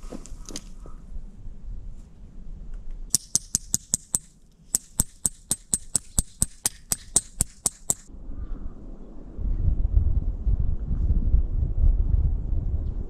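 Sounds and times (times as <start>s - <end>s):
wind rumble on microphone: 0.0s - 3.1s, 8.1s - 13.0s
stake hammered into snow: 3.1s - 8.1s.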